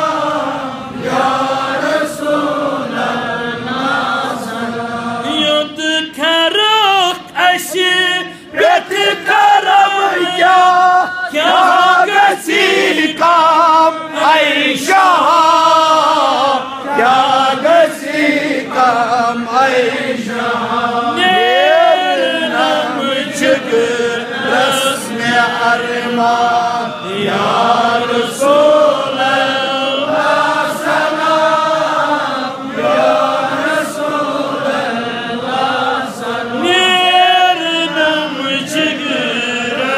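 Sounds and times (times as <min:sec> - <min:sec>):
man chanting: 0:05.2 - 0:20.4, 0:21.0 - 0:30.0, 0:36.6 - 0:39.9.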